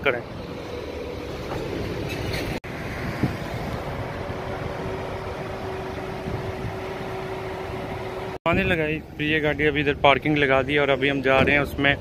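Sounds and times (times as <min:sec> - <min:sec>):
low rumble of vehicles: 0:00.0 - 0:12.0
wind on microphone: 0:02.9 - 0:04.0.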